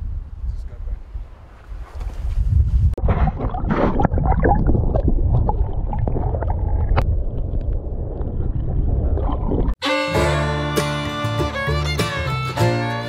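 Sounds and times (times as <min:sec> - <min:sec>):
bubbling and crackling: 0:03.0 - 0:09.8
surf churning underwater: 0:03.0 - 0:09.8.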